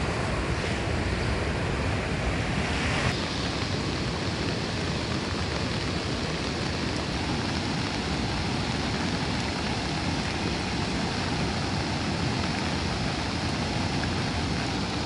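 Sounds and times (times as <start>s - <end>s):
river rushing: 0.0s - 15.0s.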